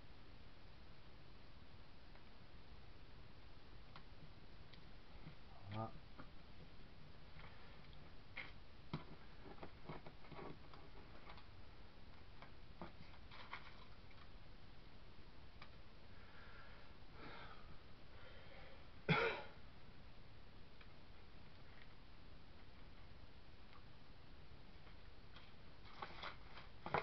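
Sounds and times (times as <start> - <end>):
card and paper rustling: 12.8 - 14.3, 25.3 - 27.0.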